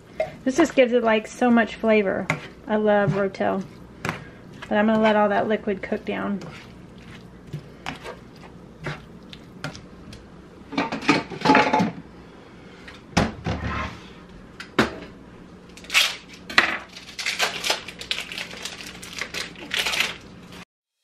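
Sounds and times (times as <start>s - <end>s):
spatula stirring in frying pan: 0.1s - 9.9s.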